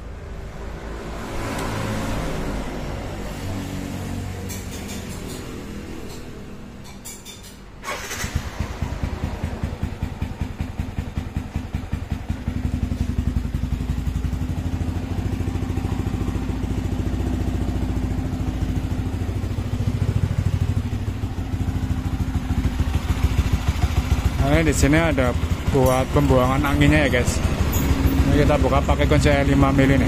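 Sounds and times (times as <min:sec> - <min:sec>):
motorcycle engine starting: 0:01.2 - 0:30.0
motorcycle engine idling: 0:07.8 - 0:30.0.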